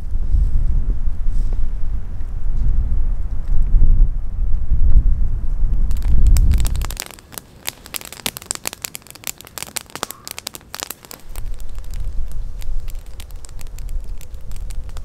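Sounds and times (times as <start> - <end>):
wind rumble on microphone: 0.0 - 7.1, 11.2 - 15.0
campfire crackling and popping: 5.7 - 15.0.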